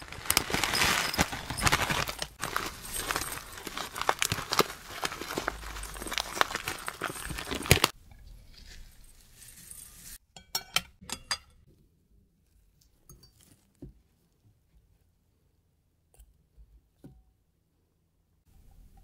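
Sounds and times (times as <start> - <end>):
dry coconut rustling and crackling: 0.0 - 10.2.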